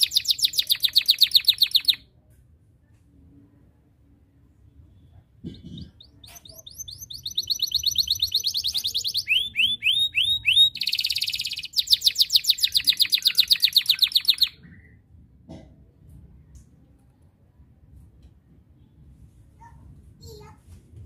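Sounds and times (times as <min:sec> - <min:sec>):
canary singing trills: 0:00.0 - 0:02.0, 0:05.4 - 0:15.0.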